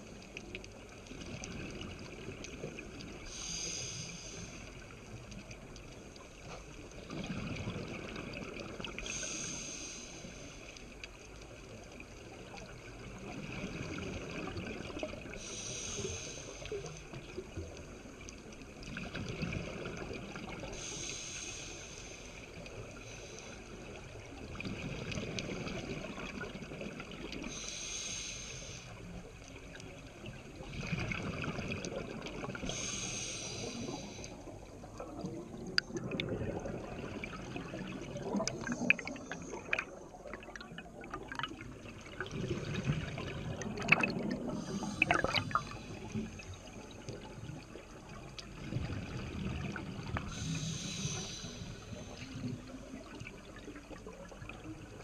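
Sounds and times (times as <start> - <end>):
hissing regulator inhale: 3.2 - 5.0, 9.0 - 11.0, 15.3 - 17.2, 20.7 - 24.0, 27.4 - 29.2, 32.4 - 34.7, 44.4 - 46.4, 50.2 - 52.5
bubbling exhaled air: 30.6 - 54.5.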